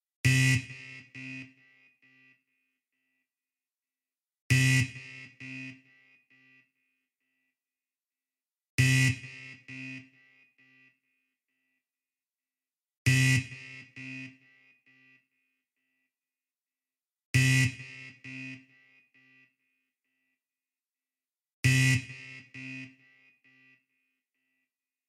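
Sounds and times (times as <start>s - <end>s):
harsh electronic buzzer blast: 21.7s - 23.1s.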